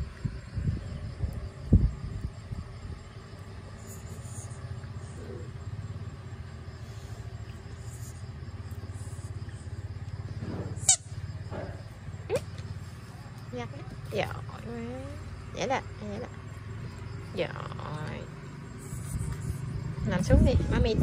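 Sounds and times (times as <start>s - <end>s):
low steady rumble: 0.0s - 21.0s
rubber squeaky ball squeak: 10.8s - 11.1s.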